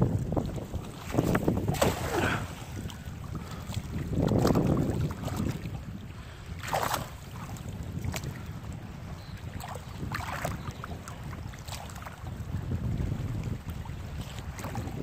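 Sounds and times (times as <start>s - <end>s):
wind buffeting microphone: 0.0s - 15.0s
water splashing: 0.3s - 5.9s, 6.6s - 8.4s.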